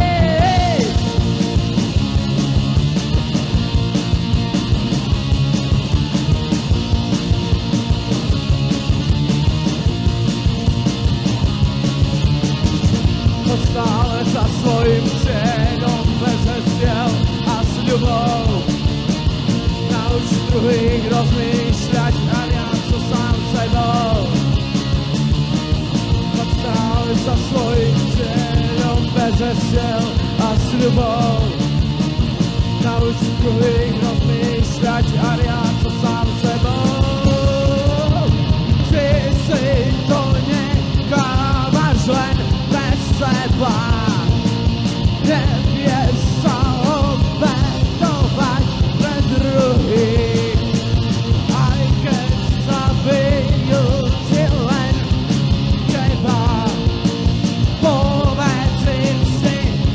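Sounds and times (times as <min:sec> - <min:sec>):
person singing: 0:00.0 - 0:01.6, 0:13.3 - 0:18.7, 0:19.8 - 0:24.6, 0:26.2 - 0:31.6, 0:32.7 - 0:44.5, 0:45.1 - 0:57.0, 0:57.7 - 0:59.9
punk rock band playing: 0:00.0 - 0:59.9.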